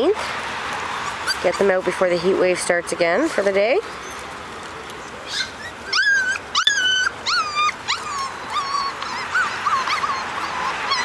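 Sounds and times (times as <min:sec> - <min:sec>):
puppies whining: 0:00.9 - 0:01.7, 0:04.0 - 0:04.4, 0:05.0 - 0:11.0.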